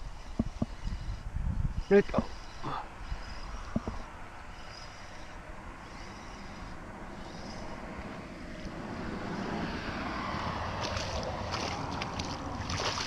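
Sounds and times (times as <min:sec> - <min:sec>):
fish splashing in water: 0:10.7 - 0:13.0.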